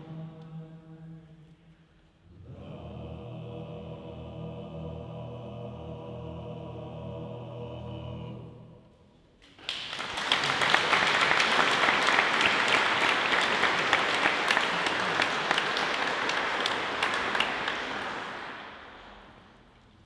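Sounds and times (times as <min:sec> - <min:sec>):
chorus singing held chord: 0:02.3 - 0:08.8, 0:10.7 - 0:19.3
audience applause: 0:09.5 - 0:19.4.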